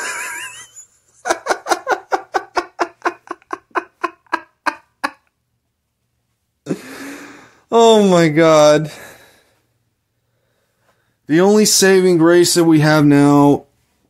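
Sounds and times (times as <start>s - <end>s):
man laughing: 0.0s - 5.3s
breathy exhale: 6.7s - 7.7s.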